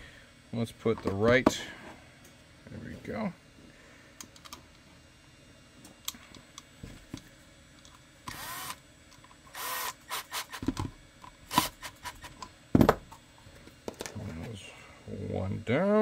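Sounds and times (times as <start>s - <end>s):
power driver running: 6.0s - 12.7s.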